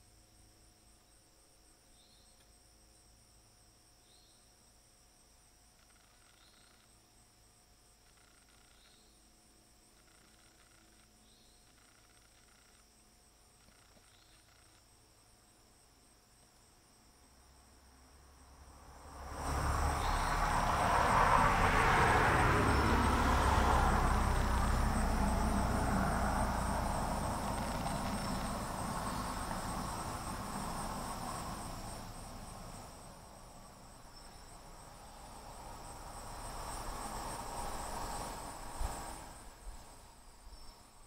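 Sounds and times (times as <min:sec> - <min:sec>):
crickets trilling: 0:00.0 - 0:41.0
vehicle passing: 0:18.5 - 0:40.2.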